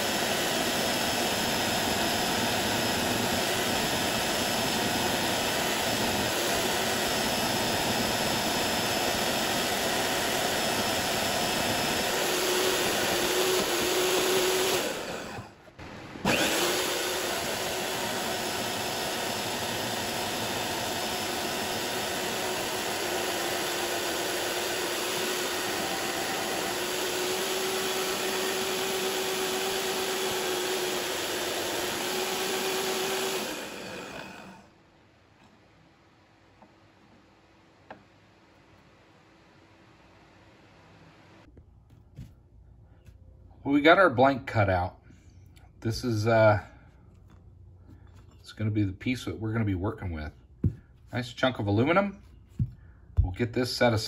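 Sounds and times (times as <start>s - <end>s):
power saw cutting metal: 0.0s - 34.7s.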